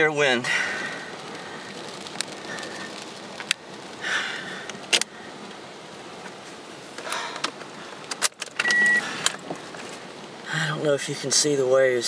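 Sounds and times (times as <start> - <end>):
rain tapping on car: 0.0 - 12.0
short high beep: 8.6 - 9.0.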